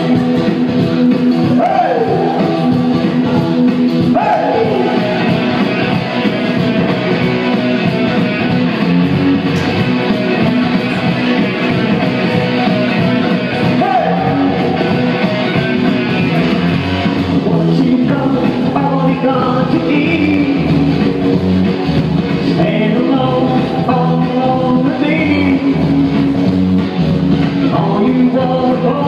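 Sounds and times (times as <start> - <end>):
electric guitar: 0.0 - 29.0
live rock band through speakers: 0.0 - 29.0.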